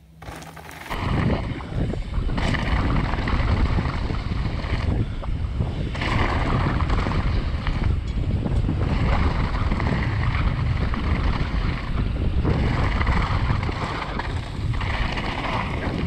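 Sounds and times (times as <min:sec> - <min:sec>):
tyres rattling over gravel: 0:00.2 - 0:01.5
wind buffeting microphone: 0:00.9 - 0:16.0.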